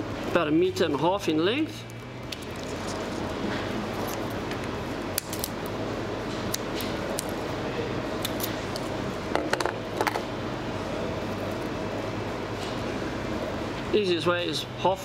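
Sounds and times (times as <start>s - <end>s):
room hum: 0.0s - 15.0s.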